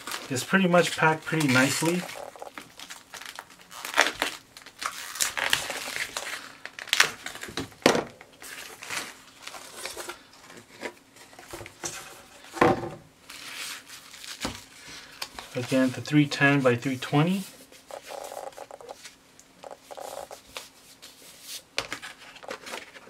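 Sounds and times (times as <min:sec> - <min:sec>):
stretch wrap crinkling and tearing: 0:00.0 - 0:07.6, 0:13.2 - 0:16.0, 0:17.3 - 0:21.6.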